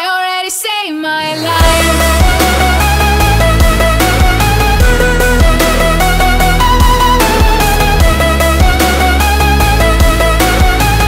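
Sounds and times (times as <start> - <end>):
electronic music with heavy bass: 1.2 - 11.0.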